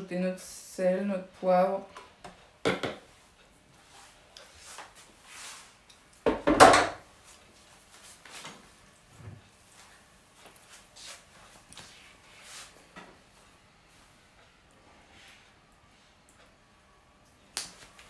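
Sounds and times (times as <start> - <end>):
faint knocks and rustles: 6.3 - 13.3.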